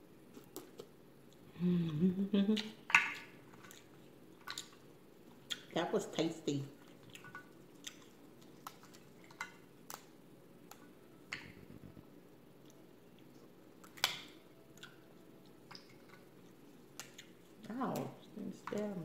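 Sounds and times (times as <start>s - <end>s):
soft wet squishing: 2.4s - 19.0s
crab shells cracking: 13.8s - 15.0s.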